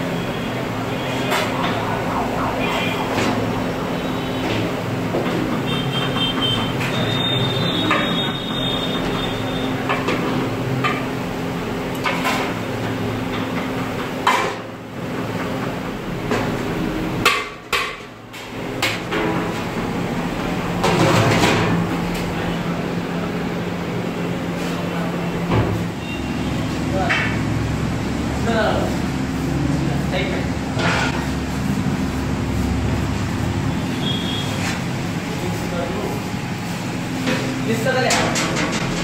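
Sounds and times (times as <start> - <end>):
knocks and clatter: 38.1 - 39.0.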